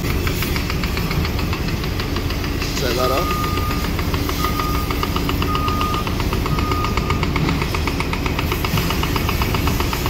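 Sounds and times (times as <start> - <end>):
diesel machinery engine clattering: 0.0 - 10.0.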